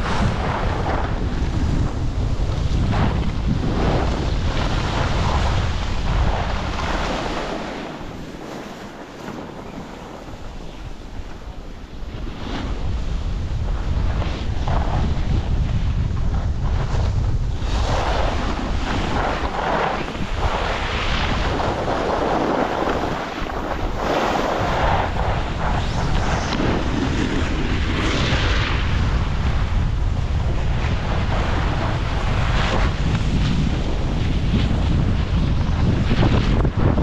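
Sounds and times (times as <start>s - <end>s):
wind buffeting microphone: 0.0s - 37.0s
ski edges scraping snow: 2.7s - 11.4s, 17.6s - 29.6s.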